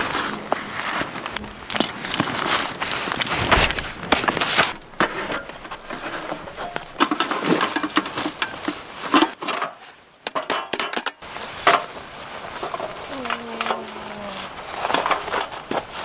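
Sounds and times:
metal stove clanking and rattling: 3.3 - 11.9.

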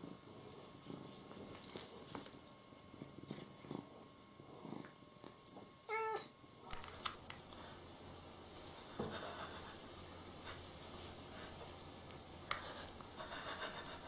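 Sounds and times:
cat purring: 0.0 - 6.2.

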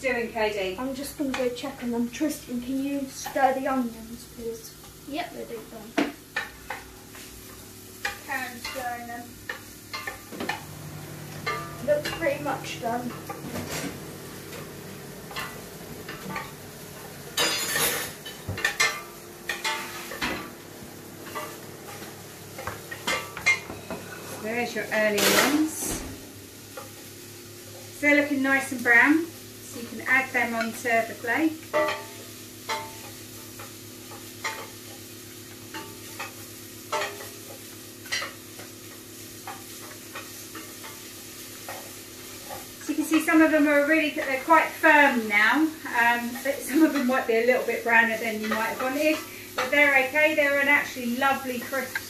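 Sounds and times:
utensil scraping onions in a frying pan: 0.0 - 52.0
utensils and dishes clinking: 9.5 - 20.6, 21.2 - 26.0.

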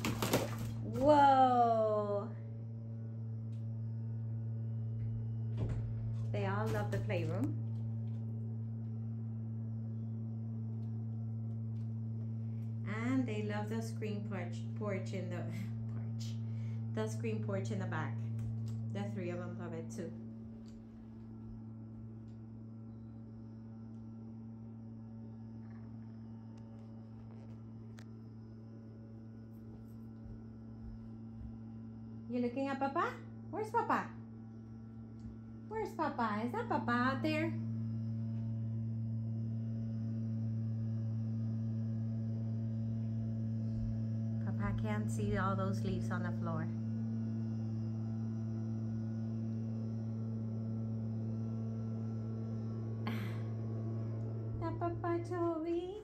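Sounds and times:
low electrical hum: 0.0 - 56.0
leaf blower engine running: 49.5 - 55.8.

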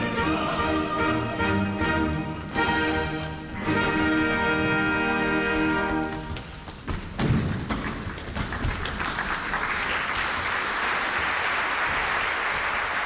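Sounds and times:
audience applauding: 7.7 - 13.0.

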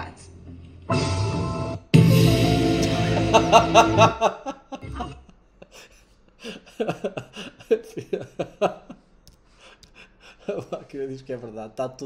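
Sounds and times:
music sting: 0.9 - 4.2.

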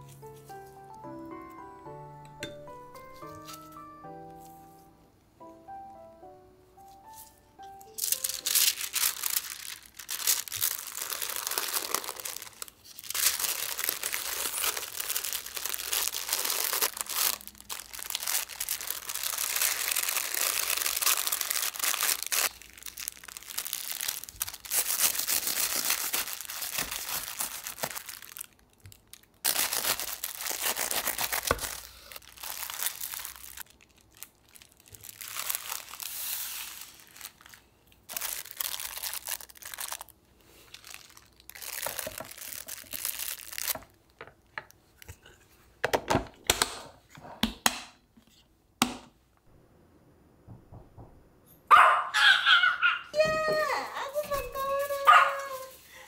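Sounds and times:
wax paper crinkling: 7.0 - 45.4, 53.5 - 56.0.

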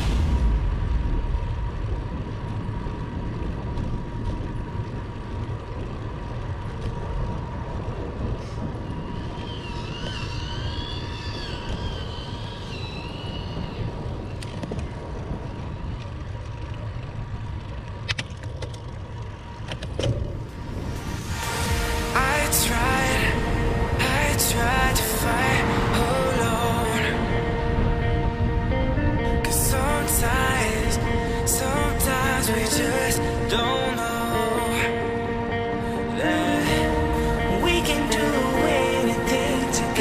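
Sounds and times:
tyres rolling on asphalt: 0.0 - 35.8
wind on microphone: 0.0 - 40.0
wavering high whistle: 9.2 - 13.9.

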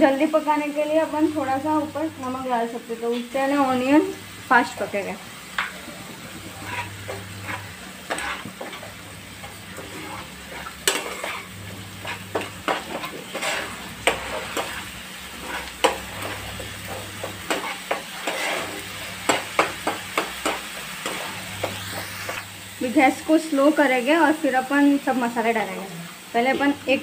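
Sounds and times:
light sizzling in oil: 0.0 - 27.0
spoon scraping frying pan: 5.5 - 22.4.

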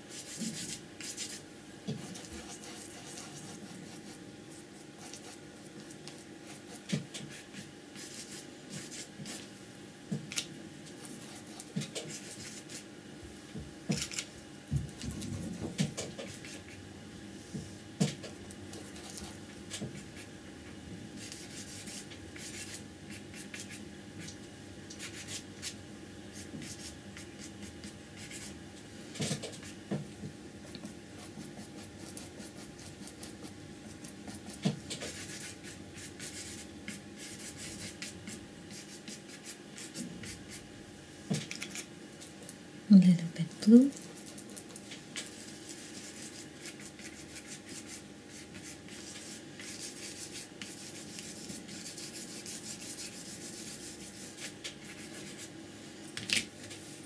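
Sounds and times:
faint steady hum: 0.0 - 57.0
paintbrush scratching on paper: 2.0 - 5.4, 6.4 - 9.4, 21.2 - 23.8, 31.2 - 38.1, 45.3 - 55.5.

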